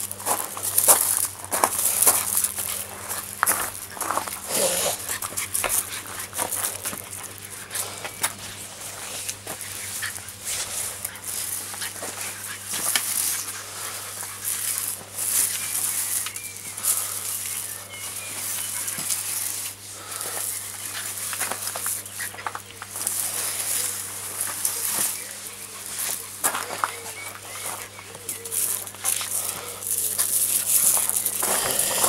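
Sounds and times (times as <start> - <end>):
push broom scraping stone: 2.9 - 16.5, 29.0 - 32.0.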